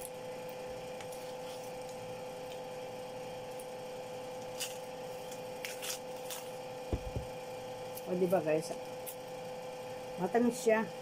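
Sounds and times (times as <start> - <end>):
steady background hum: 0.0 - 11.0
fruit segments tearing: 4.4 - 7.2.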